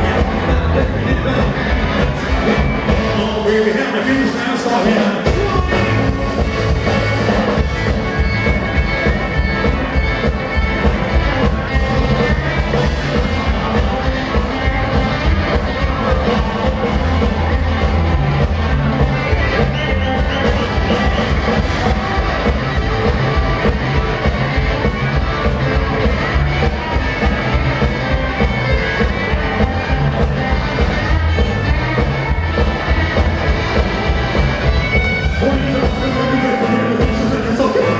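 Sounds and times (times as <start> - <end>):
rockabilly band playing: 0.0 - 37.9.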